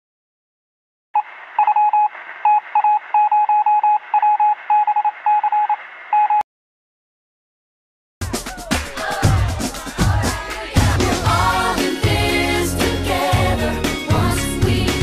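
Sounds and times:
morse code beeping: 1.2 - 6.4.

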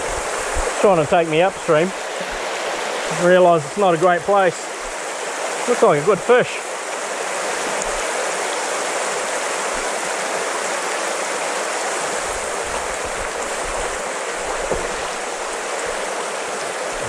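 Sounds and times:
stream rushing over stones: 0.0 - 17.0.

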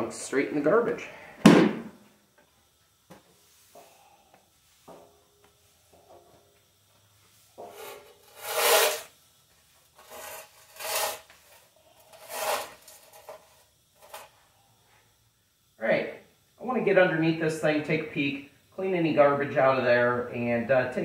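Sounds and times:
broom sweeping concrete floor: 2.8 - 15.2.

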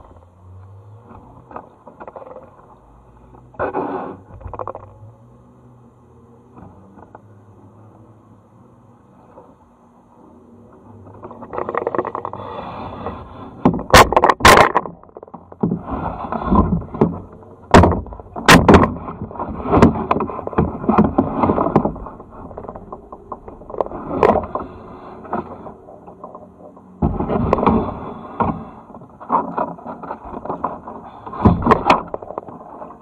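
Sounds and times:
kayak scraping against rock: 3.6 - 4.9, 11.1 - 33.0
sharp knocks: 16.4 - 22.0.

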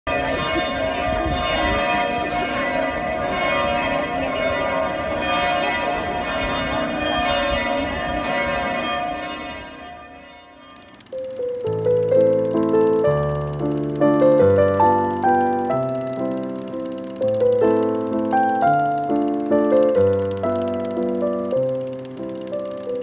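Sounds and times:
church bells pealing: 0.1 - 11.0.

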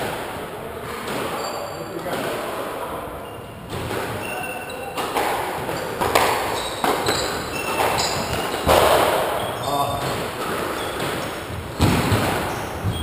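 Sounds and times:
sneakers squeaking on wooden floor: 0.8 - 13.0
squash ball hits: 3.7 - 13.0.

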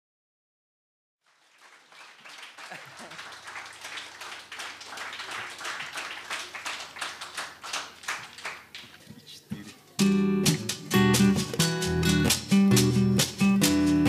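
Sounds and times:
audience applauding: 1.2 - 9.0
band with strummed acoustic guitar: 9.6 - 14.0.

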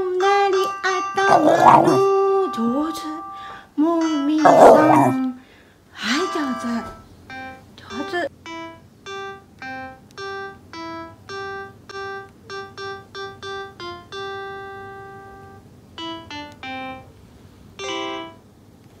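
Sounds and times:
keyboard playing simple melody: 8.5 - 17.2, 17.8 - 18.5.

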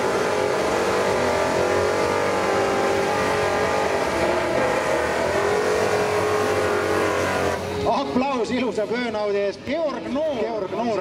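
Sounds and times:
car engine at high revs: 0.0 - 7.9.

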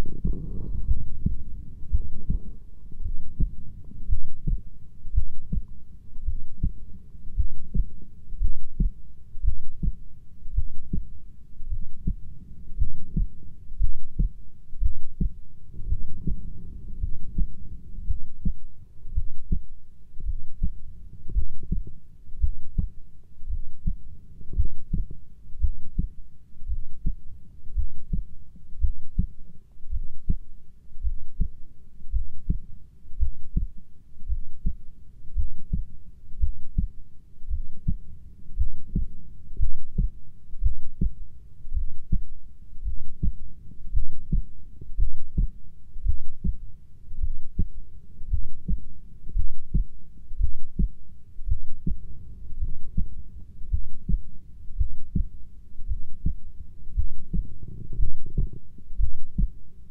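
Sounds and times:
heartbeat thumps: 0.0 - 59.9.

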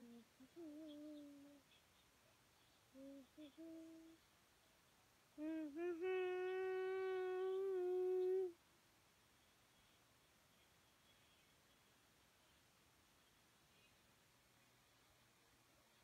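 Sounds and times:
child humming: 0.0 - 1.7, 2.9 - 4.2, 5.4 - 8.6.

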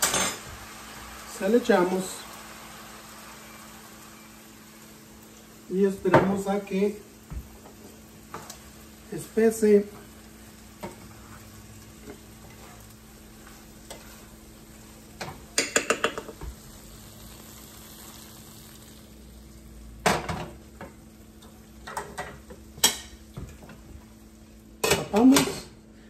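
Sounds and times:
faint sizzle: 0.0 - 26.0
wooden spatula stirring in pan: 5.8 - 16.8.

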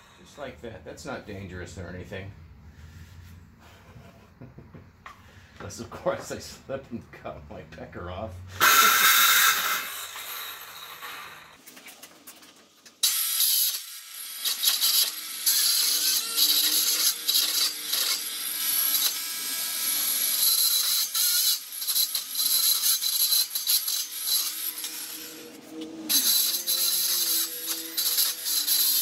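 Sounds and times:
circular saw cutting board: 8.5 - 12.1, 13.0 - 29.0.

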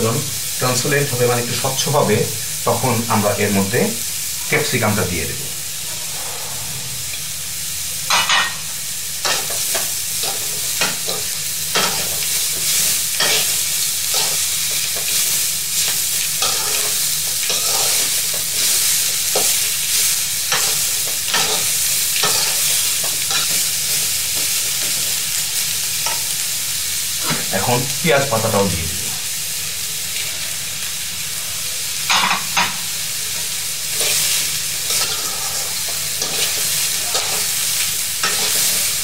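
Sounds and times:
vegetables sizzling in a pan: 0.0 - 39.0
metal spatula scraping a pan: 5.8 - 7.3, 34.0 - 37.5.

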